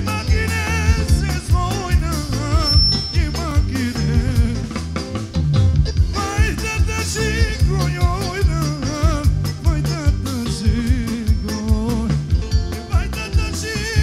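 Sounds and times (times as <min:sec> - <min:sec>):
man singing into microphone: 0:00.0 - 0:04.8, 0:06.1 - 0:14.0
drum kit steady beat: 0:00.0 - 0:14.0
steady bass: 0:00.0 - 0:14.0
wavering ornamented melody: 0:02.6 - 0:03.8.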